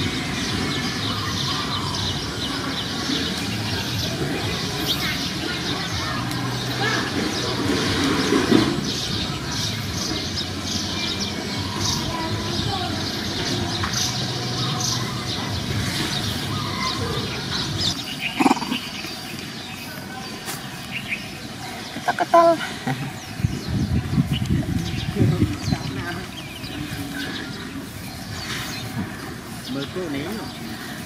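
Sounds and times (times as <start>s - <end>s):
birds chirping: 0.0s - 31.0s
faint distant voices: 0.0s - 31.0s
squeaky pitched calls: 16.8s - 19.0s.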